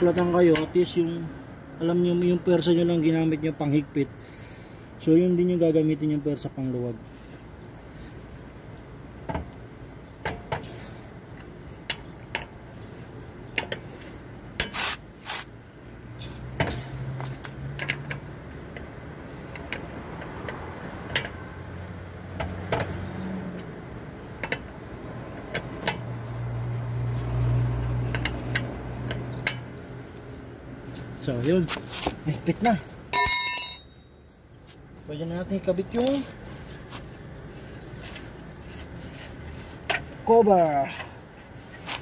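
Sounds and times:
lug wrench clicking on lug nuts: 16.6s - 21.6s, 22.3s - 26.4s, 28.1s - 29.9s.

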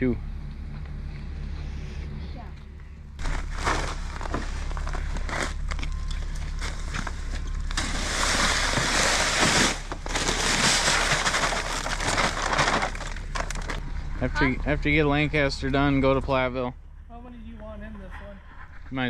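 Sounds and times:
low hum: 0.0s - 19.0s
bag rustling: 3.2s - 13.8s.

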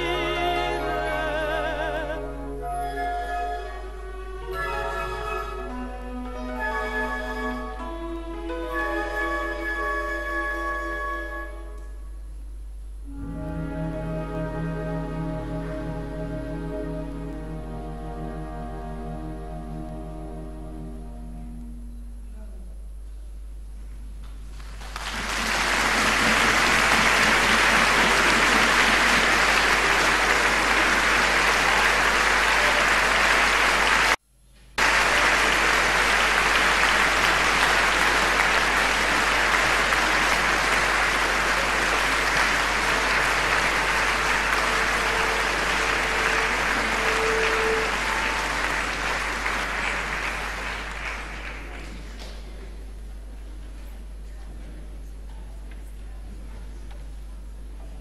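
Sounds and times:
audience applauding: 0.0s - 2.2s, 24.5s - 34.2s, 34.8s - 52.5s.

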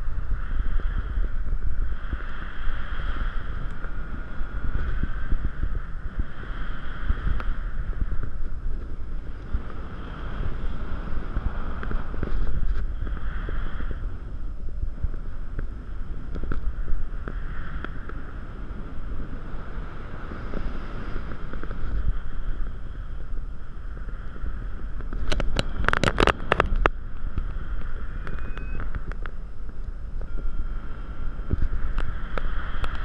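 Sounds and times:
wind buffeting microphone: 0.0s - 33.0s
sharp clicks and rattles: 25.0s - 27.0s.

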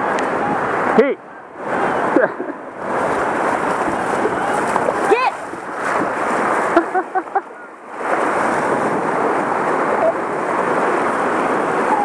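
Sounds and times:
surf washing in: 0.0s - 12.0s
wind buffeting microphone: 2.7s - 12.0s.

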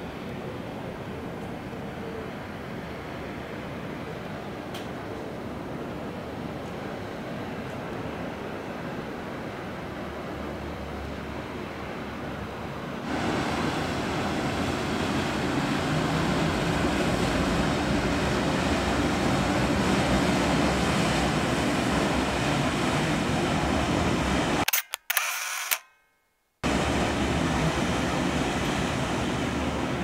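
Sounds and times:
boat engine rumble: 0.0s - 24.6s
water wash: 13.0s - 24.6s, 26.7s - 30.0s.

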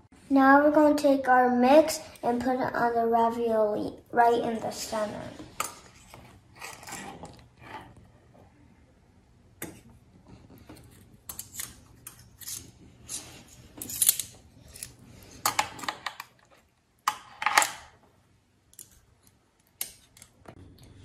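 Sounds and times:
metal scoop scraping plastic bowl: 4.8s - 8.0s.

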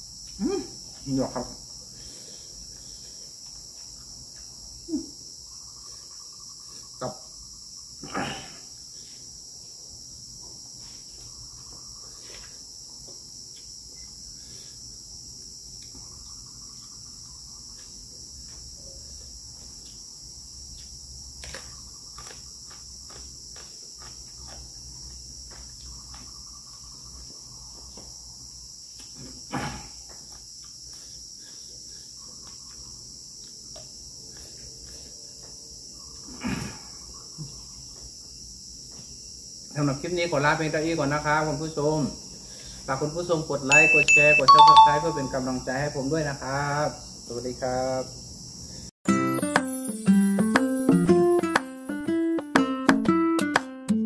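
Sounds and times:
high-pitched insect chirring: 3.7s - 8.0s, 8.7s - 23.2s, 24.4s - 29.1s, 36.9s - 47.4s, 48.0s - 52.0s.

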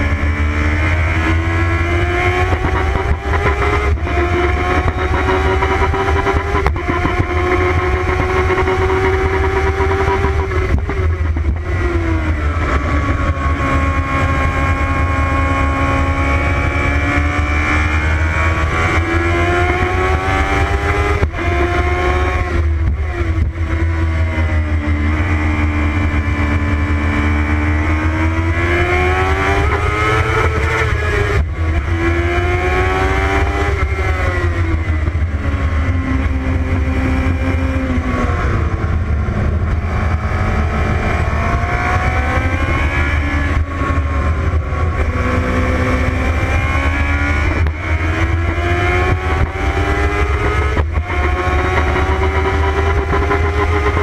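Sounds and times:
race car engine revving: 0.0s - 54.0s
steady low rumble: 33.6s - 46.5s.

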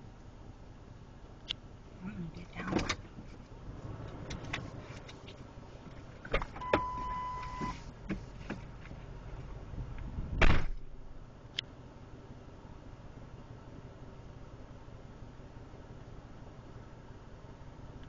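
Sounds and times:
electronic beep: 6.6s - 7.7s
short thump: 10.3s - 10.9s.

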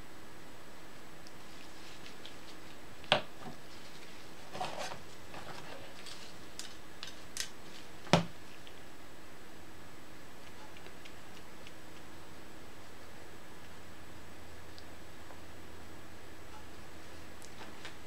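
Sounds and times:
steady low hiss: 0.0s - 18.0s
scratchy scrape: 3.8s - 6.4s.

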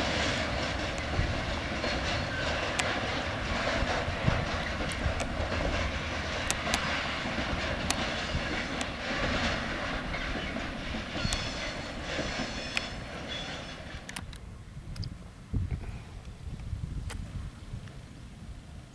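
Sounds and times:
train wheels clicking: 0.0s - 15.1s
freight train rumbling past: 0.0s - 18.9s.

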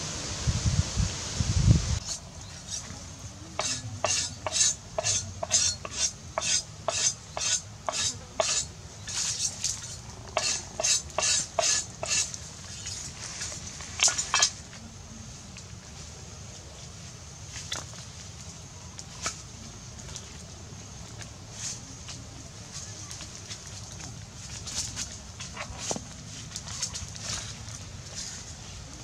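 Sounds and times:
spoon stirring in metal pot: 3.6s - 12.4s.

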